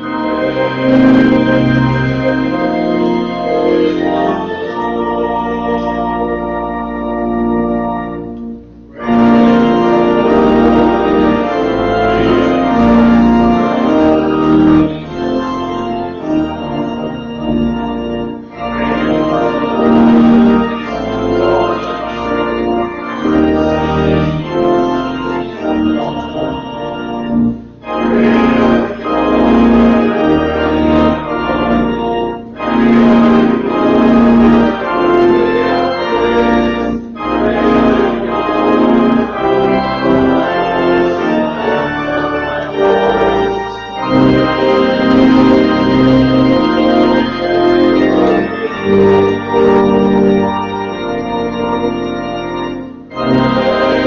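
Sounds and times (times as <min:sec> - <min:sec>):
church organ chords: 0:00.0 - 0:54.0.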